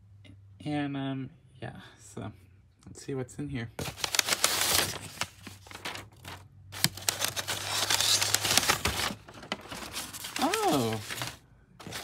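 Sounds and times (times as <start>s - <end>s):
paper crinkling and rustling: 3.8s - 12.0s.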